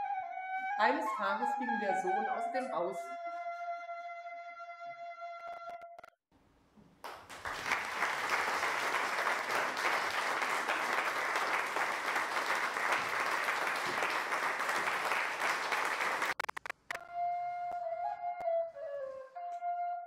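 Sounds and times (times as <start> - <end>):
audience applauding: 7.0 - 17.0.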